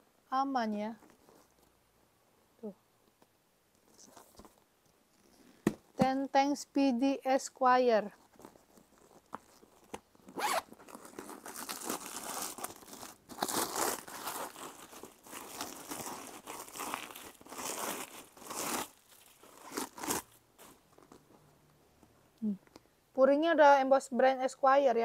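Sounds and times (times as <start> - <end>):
handbag rustling and crinkling: 8.0 - 21.4.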